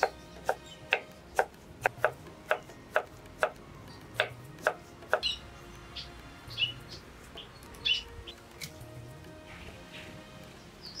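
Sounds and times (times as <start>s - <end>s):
knife chopping: 0.0s - 5.4s
bird chirps: 5.1s - 8.8s, 9.9s - 11.0s.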